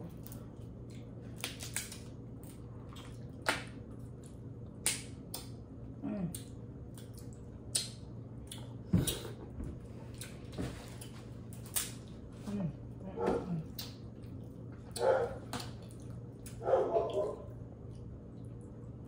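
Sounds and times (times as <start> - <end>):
wet chewing squishes: 0.0 - 9.2, 9.9 - 19.0
steady low hum: 0.0 - 19.0
crab shells cracking: 1.3 - 2.6.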